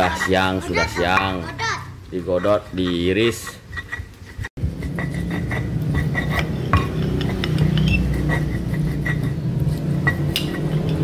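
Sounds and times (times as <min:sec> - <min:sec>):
steady low hum: 0:03.7 - 0:11.0.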